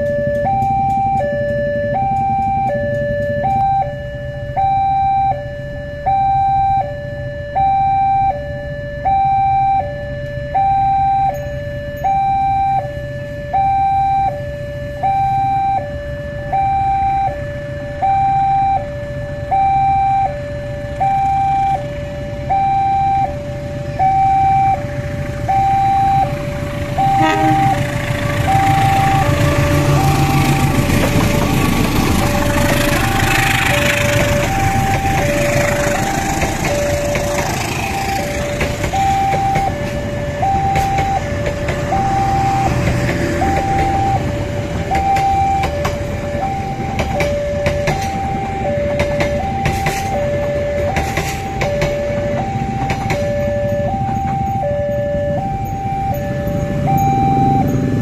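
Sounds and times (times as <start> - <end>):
level crossing two-tone alarm: 0.0 - 58.0
train low rumble: 0.0 - 58.0.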